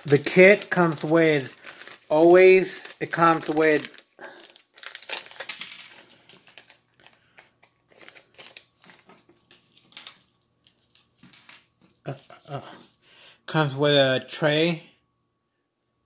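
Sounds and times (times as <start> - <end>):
plastic zip bag crinkling: 0.0 - 12.4.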